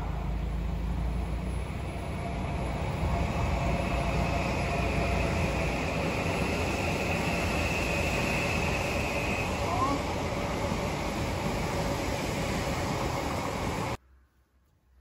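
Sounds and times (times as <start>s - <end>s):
faint high whine: 0.0s - 10.6s
van engine drone: 0.0s - 12.3s.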